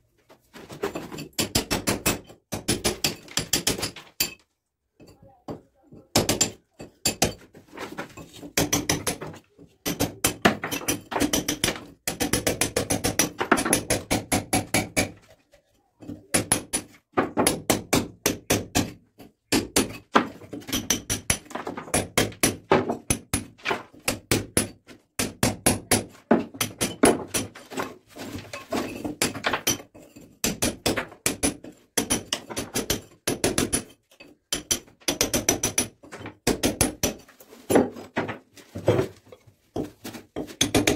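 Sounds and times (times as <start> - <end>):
hammer striking chisel into brick: 1.3 - 4.4, 6.1 - 7.4, 8.6 - 15.2, 16.3 - 27.5, 29.2 - 37.2, 40.5 - 40.9.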